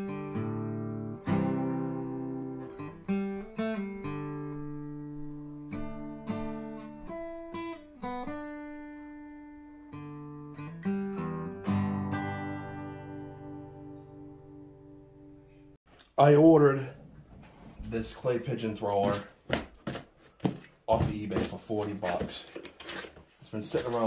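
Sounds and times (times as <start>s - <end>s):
acoustic guitar chords: 0.0s - 15.8s.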